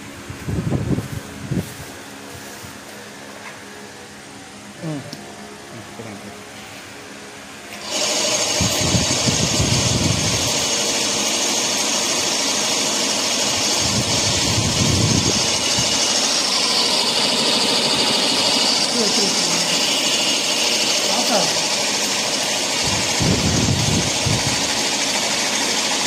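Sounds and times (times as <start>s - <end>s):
mixer grinder whining: 7.7s - 26.0s.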